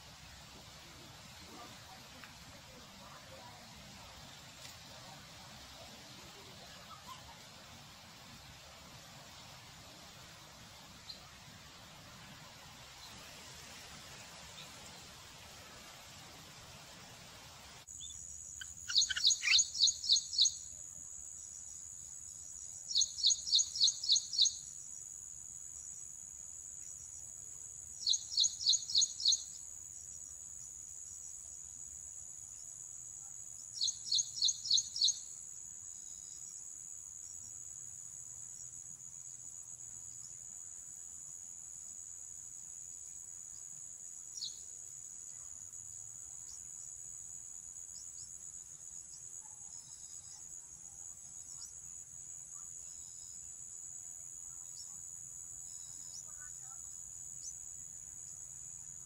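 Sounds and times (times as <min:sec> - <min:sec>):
insect trill: 0:12.8 - 0:59.0.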